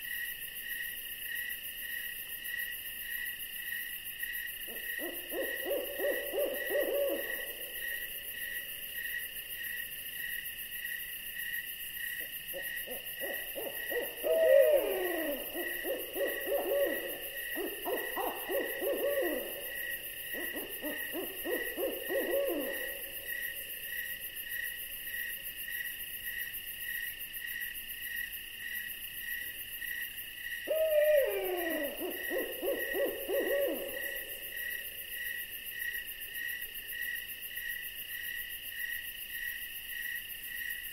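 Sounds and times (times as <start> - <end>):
insects chirping: 0.0 - 40.9
owl calling: 4.7 - 7.6, 12.5 - 23.4, 30.7 - 34.8.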